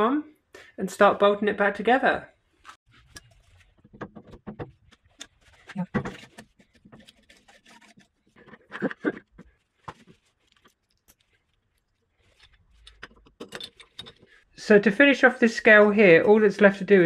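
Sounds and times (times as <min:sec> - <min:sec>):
metal parts clicking and knocking: 0:12.4 - 0:14.4.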